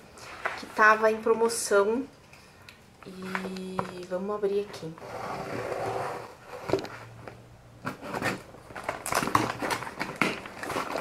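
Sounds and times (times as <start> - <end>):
packing crackling and rustling: 7.8 - 11.0
cardboard tearing: 7.9 - 11.0.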